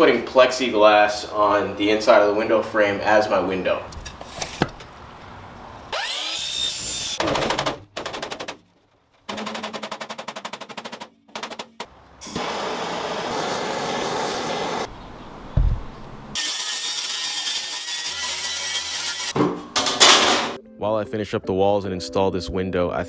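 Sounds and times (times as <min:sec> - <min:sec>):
power tool motor whining: 0:05.9 - 0:07.2.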